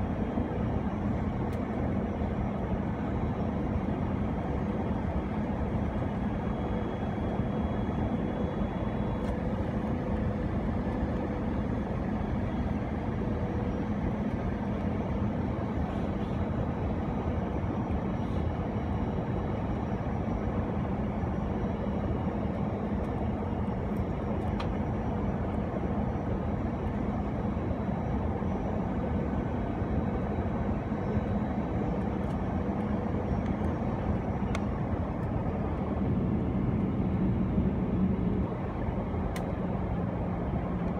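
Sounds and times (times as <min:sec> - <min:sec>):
airliner cabin engine roar: 0:00.0 - 0:40.9.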